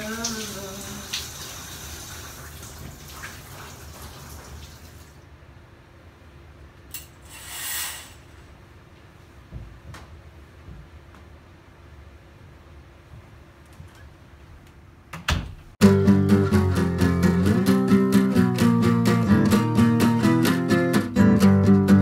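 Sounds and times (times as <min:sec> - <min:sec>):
water running in bathtub: 0:00.0 - 0:05.2
shower curtain rings sliding: 0:06.9 - 0:08.4.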